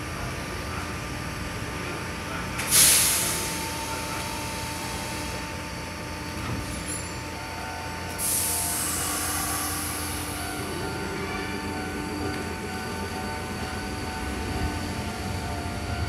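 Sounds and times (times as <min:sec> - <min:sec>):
air brakes hissing: 0:02.6 - 0:05.5, 0:08.1 - 0:12.8.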